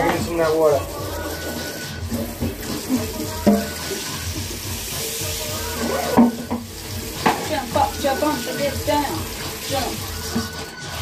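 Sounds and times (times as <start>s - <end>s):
food sizzling in a frying pan: 0.0s - 11.0s
utensil striking a pan: 1.5s - 10.6s.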